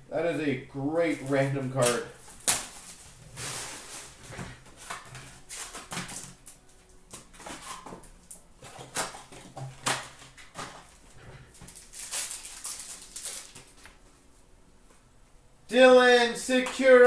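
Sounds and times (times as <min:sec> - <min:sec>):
cardboard and wrapper rustling: 0:01.1 - 0:14.0.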